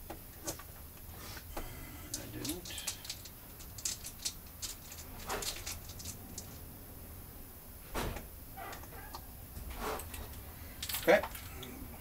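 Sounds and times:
small parts clicking on metal: 2.1s - 6.6s, 10.0s - 11.7s.

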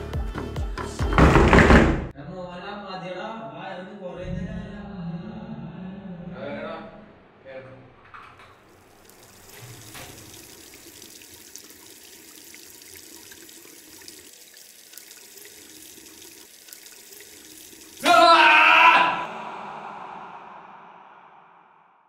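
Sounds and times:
running water hissing: 8.5s - 18.4s.

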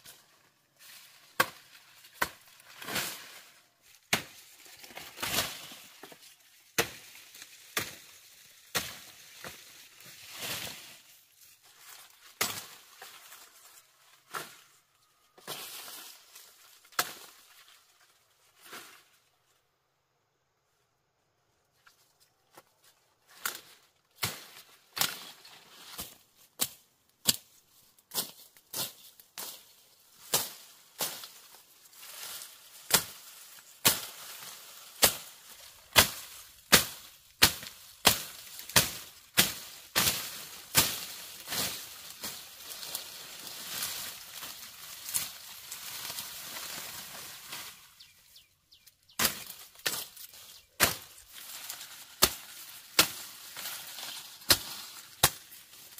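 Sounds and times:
dry stalks rustling: 0.0s - 19.7s, 21.6s - 55.9s
blade chopping grass stalks: 1.2s - 11.0s, 12.2s - 13.3s, 15.4s - 17.5s, 23.4s - 47.9s, 49.1s - 55.9s.

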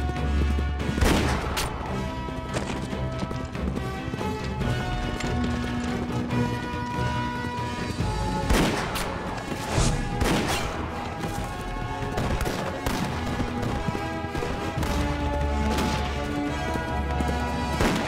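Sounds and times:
background music with sustained tones: 0.0s - 18.0s
sharp gunshots: 0.9s - 1.8s, 8.4s - 11.0s, 17.7s - 18.0s.

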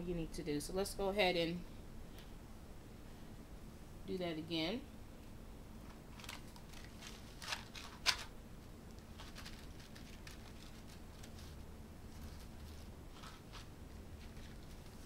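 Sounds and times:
clicks and rustles of toothpick box: 8.9s - 11.6s.

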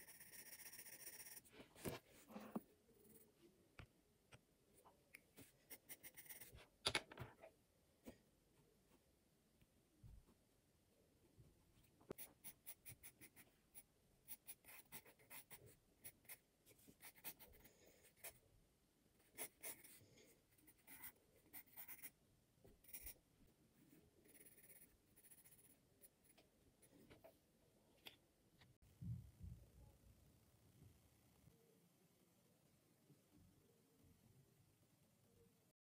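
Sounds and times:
pencil scratching on paper: 0.0s - 3.2s, 5.4s - 6.6s, 12.1s - 18.4s, 19.2s - 23.2s, 23.8s - 26.4s.

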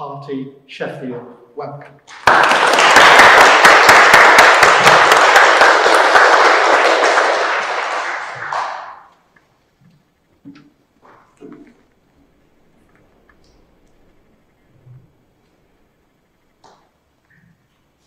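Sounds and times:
audience applauding: 2.1s - 9.2s.

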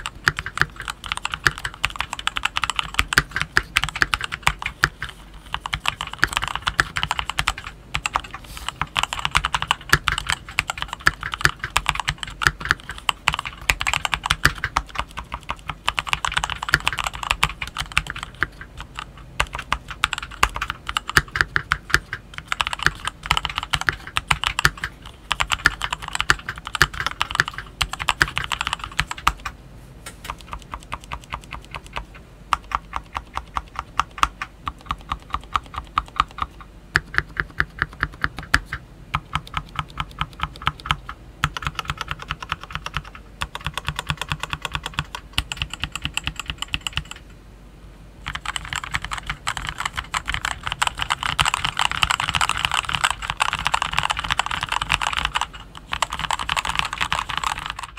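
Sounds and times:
mechanical keyboard typing: 0.0s - 29.6s, 30.2s - 47.2s, 48.2s - 57.9s.

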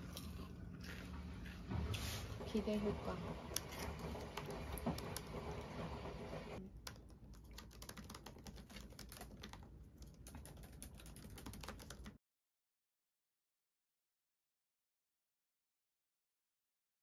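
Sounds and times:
laptop keyboard typing: 3.6s - 12.2s.

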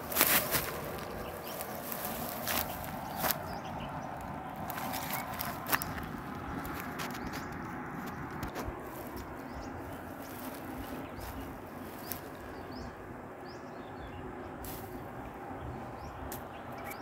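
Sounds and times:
steady low rumble: 0.0s - 17.0s
high bird chirps: 16.0s - 17.0s.

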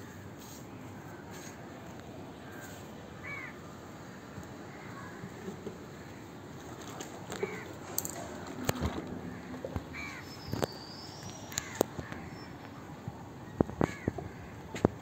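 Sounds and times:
crows cawing: 2.4s - 5.2s, 7.3s - 8.2s, 9.1s - 10.6s, 11.5s - 12.5s, 13.8s - 14.6s.

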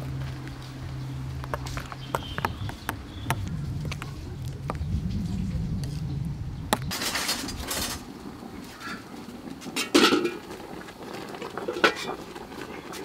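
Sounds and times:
metal pot lid clanking: 8.8s - 10.5s, 11.6s - 12.2s.

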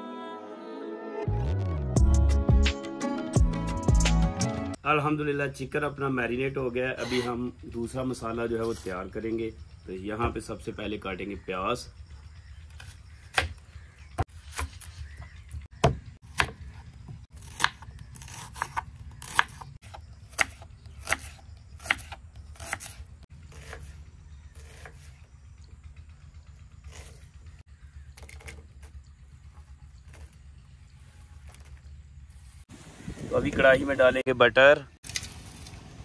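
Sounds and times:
knife chopping onions: 15.8s - 25.1s.

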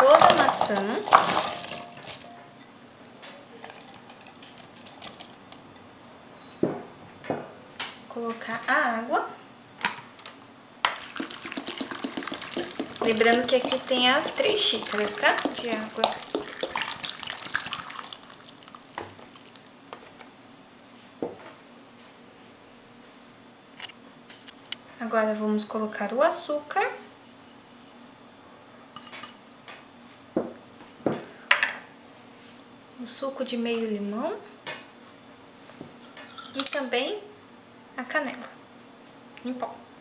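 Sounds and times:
apple cubes dropping into saucepan: 0.0s - 2.2s
water pouring into saucepan: 10.9s - 19.7s.

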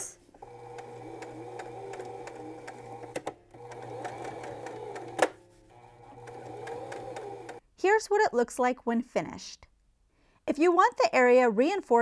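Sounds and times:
sewing machine motor hum: 0.4s - 7.6s.

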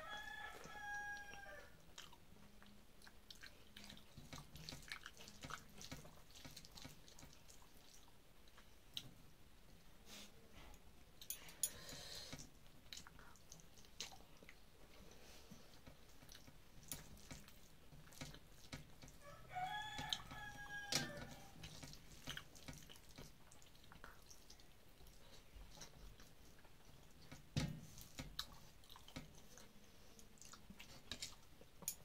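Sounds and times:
rooster crowing: 0.0s - 1.8s, 19.2s - 21.6s
person chewing: 1.9s - 9.1s, 28.0s - 32.0s
fingers mixing rice on a plate: 3.0s - 9.0s, 11.3s - 32.0s.

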